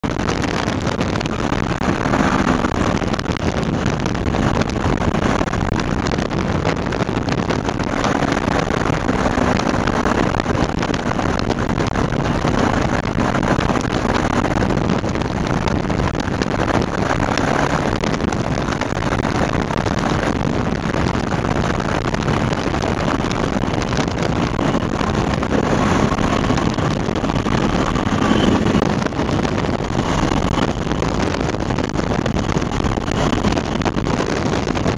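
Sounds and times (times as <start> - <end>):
wind rushing over microphone: 0.0 - 34.9
microlight engine running: 23.7 - 34.5.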